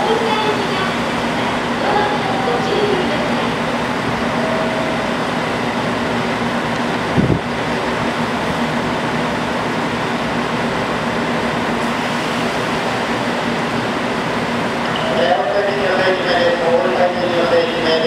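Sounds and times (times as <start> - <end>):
train air-conditioning whir: 0.0 - 18.0.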